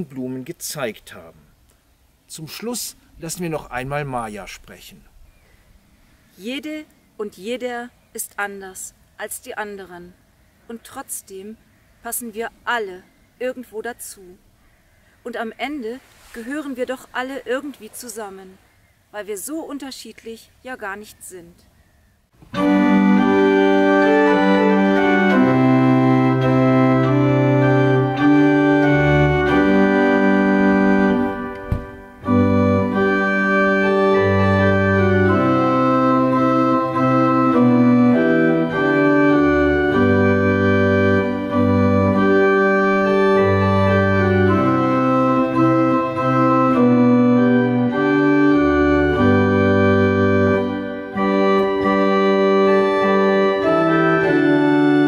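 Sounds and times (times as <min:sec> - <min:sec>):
pipe organ playing a hymn: 0:22.5 - 0:55.0.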